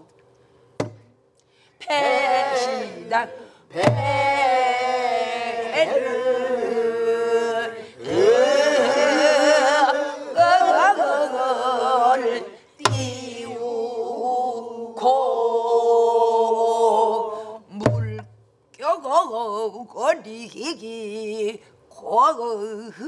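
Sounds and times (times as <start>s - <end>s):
barrel drum struck with stick: 0.8s - 1.1s, 3.8s - 4.2s, 12.8s - 13.2s
group singing folk song: 1.8s - 18.2s
woman singing with vibrato: 1.8s - 23.0s.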